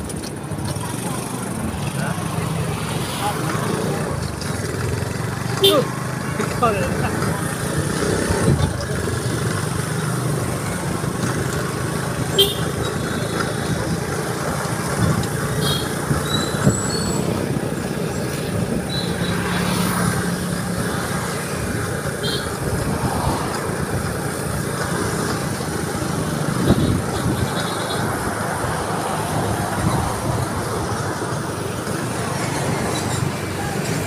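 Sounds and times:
passing traffic: 0.0 - 34.0
motorcycle engine running: 0.4 - 28.4
wind rush: 22.6 - 24.7.

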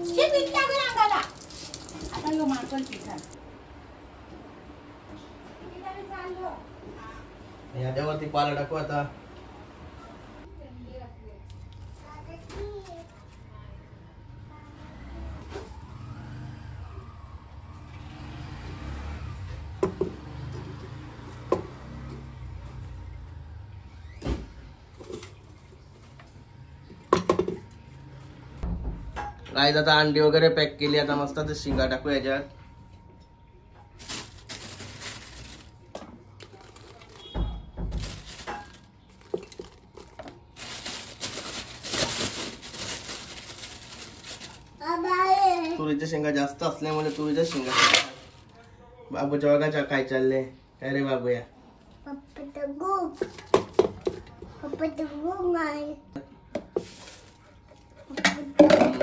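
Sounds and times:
plastic bag crinkling: 34.0 - 37.4, 38.0 - 44.8, 46.8 - 48.6
eggs knocking in metal pot: 58.2 - 59.0.

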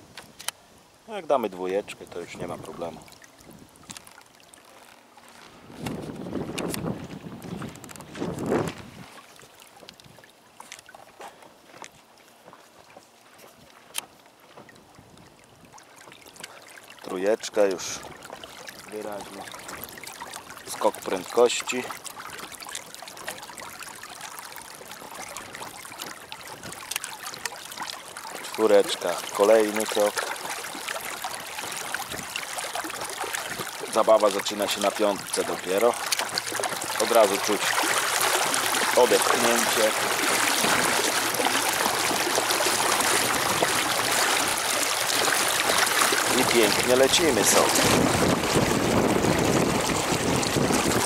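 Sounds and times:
water splashing along dinghy: 0.0 - 51.0.

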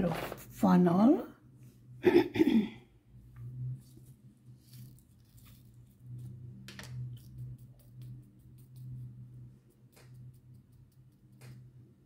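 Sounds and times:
steady low hum: 1.3 - 12.0.

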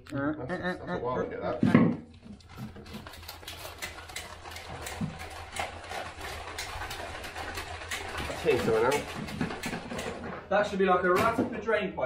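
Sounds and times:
cable scraping through conduit: 2.3 - 10.6.

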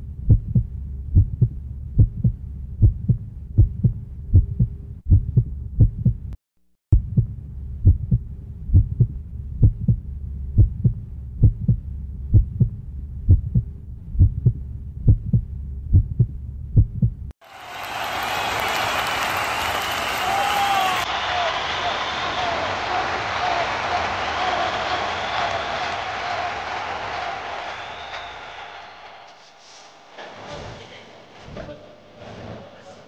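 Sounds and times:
heartbeat thuds: 0.2 - 17.3
low steady hum: 7.0 - 17.3.

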